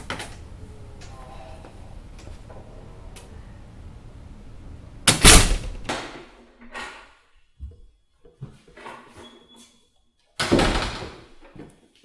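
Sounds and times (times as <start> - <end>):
low hum: 0.0 - 5.9.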